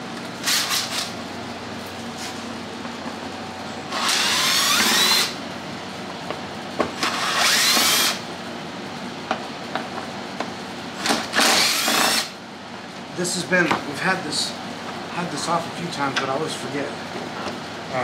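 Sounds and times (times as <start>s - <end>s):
power drill whirring: 3.9s - 5.4s, 7.0s - 8.2s, 11.0s - 12.4s.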